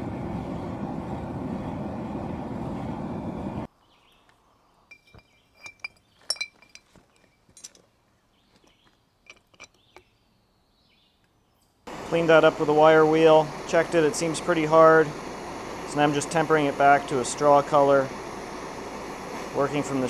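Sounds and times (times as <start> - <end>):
forge burner rushing: 0.0 - 3.7, 11.9 - 20.0
metal clinking against glass: 4.9 - 7.8, 9.3 - 10.1.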